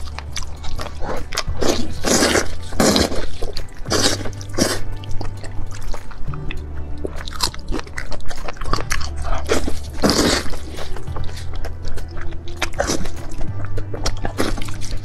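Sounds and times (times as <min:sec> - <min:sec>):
slurp: 0:00.0 - 0:06.0, 0:07.0 - 0:11.8
soft background music: 0:00.0 - 0:15.0
wet chewing and lip smacks: 0:00.0 - 0:15.0.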